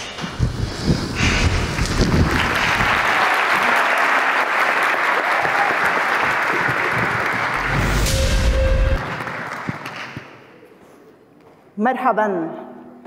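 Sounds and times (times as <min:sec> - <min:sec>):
audience applauding: 0:01.6 - 0:10.5.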